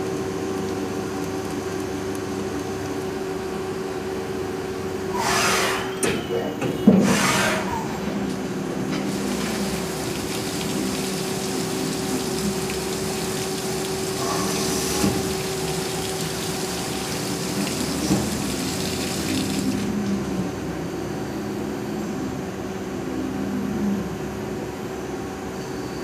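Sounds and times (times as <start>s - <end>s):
coolant spray hissing: 9.1s - 20.0s.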